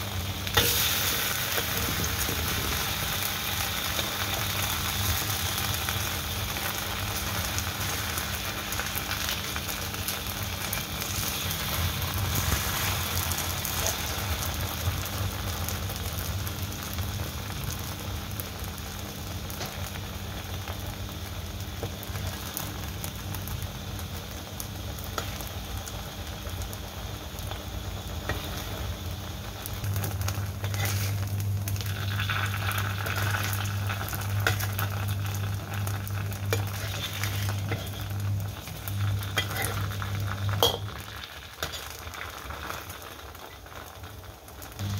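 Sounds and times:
cake sizzling in oil: 0:00.0 - 0:44.9
spatula scraping a wok: 0:11.0 - 0:14.1, 0:30.1 - 0:35.2, 0:35.8 - 0:40.9, 0:41.6 - 0:42.0.

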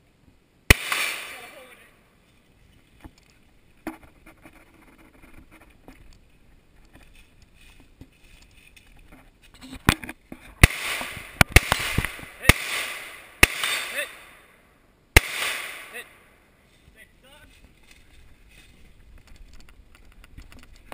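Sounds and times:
rifle shots echoing: 0:00.7 - 0:01.9, 0:10.6 - 0:14.6, 0:15.2 - 0:16.5
footsteps on leafy dirt trail: 0:02.2 - 0:11.2, 0:16.6 - 0:20.8.

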